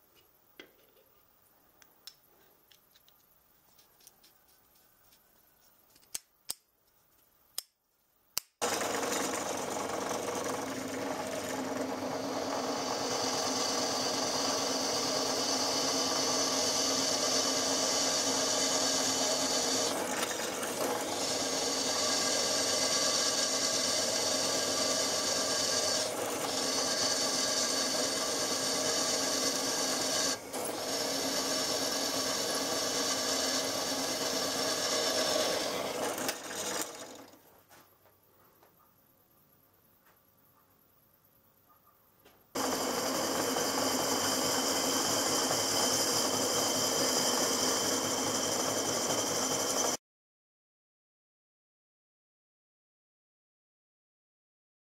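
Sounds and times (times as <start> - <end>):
drill press cutting metal: 8.6 - 37.4, 42.6 - 50.0.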